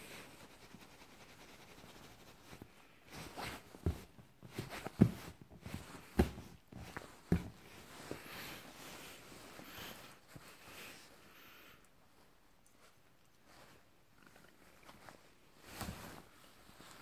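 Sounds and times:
scuffing and rustling: 3.1 - 10.6, 15.0 - 17.0
dull thumps on leather sofa: 3.3 - 8.1.

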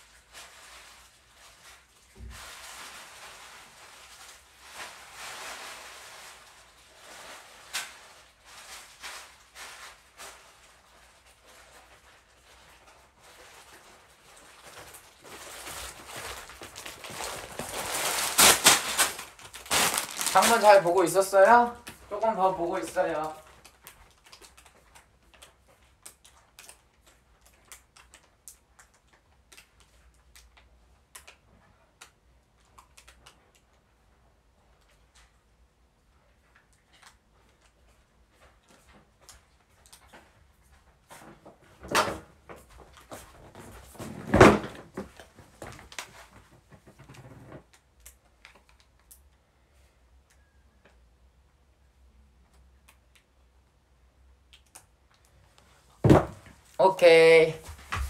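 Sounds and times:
rustling and clattering: 36.9 - 47.7.

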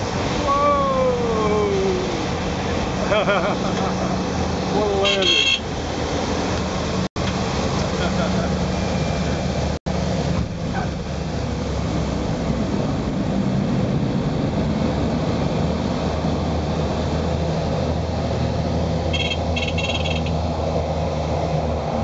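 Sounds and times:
small airplane engine drone: 0.0 - 22.0.

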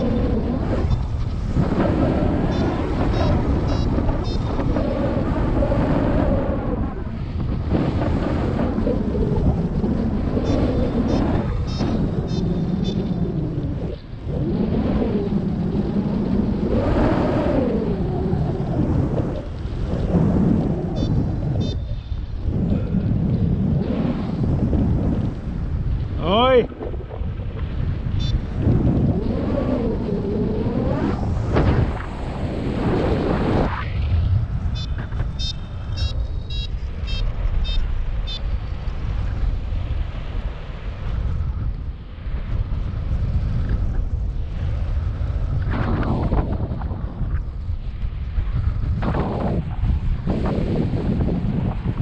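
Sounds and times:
wind buffeting microphone: 0.0 - 52.0
short electronic beeps: 21.0 - 21.9, 34.7 - 38.4.

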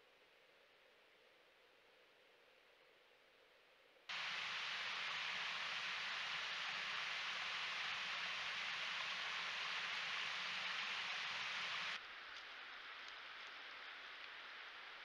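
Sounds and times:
thin hiss: 4.1 - 12.0
water hissing: 4.1 - 12.0
faint ticks: 11.4 - 14.5.

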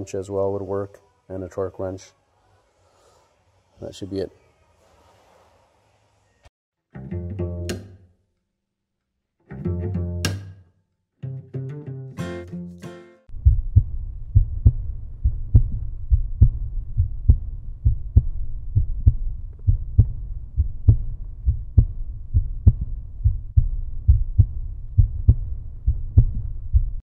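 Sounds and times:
pulsing heartbeat-like music beat: 13.3 - 27.0.

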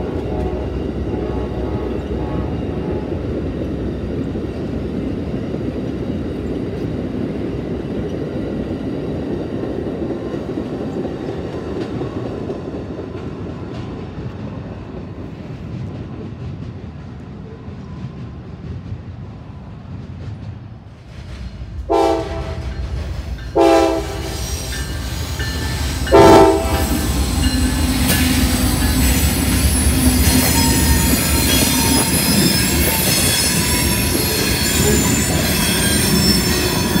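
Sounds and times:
train horn blasts: 0.0 - 3.6, 21.9 - 22.8, 23.5 - 27.8
train rumbling past: 0.0 - 37.0
wheels squealing on rails: 22.6 - 37.0.

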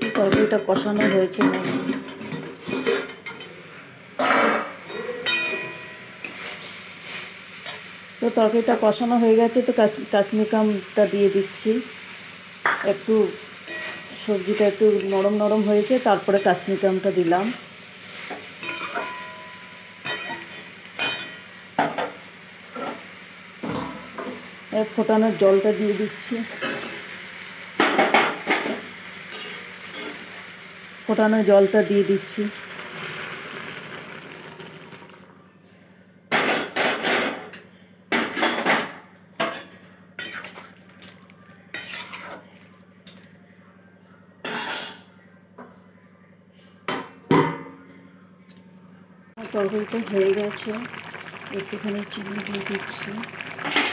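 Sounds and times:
water hissing in hot pan: 6.2 - 19.1, 22.2 - 35.4, 49.4 - 53.9.

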